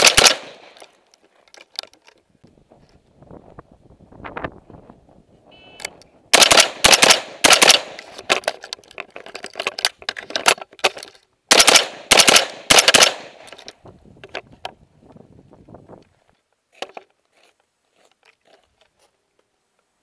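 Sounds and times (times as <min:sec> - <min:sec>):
rifle gunshots: 0:00.0 - 0:00.8, 0:06.3 - 0:08.1, 0:11.5 - 0:13.5.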